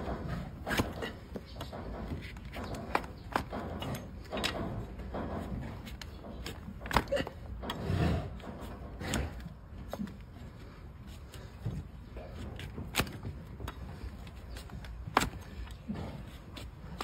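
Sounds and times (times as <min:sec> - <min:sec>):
blade cracking through hoof: 0:00.6 - 0:01.2.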